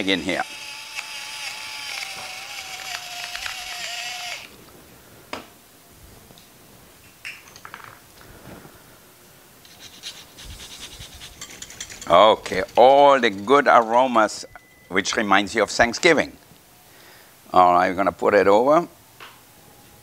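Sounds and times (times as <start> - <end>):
pepper mill motor whirring: 0.0 - 4.5
nutmeg scratching on grater: 9.7 - 14.3.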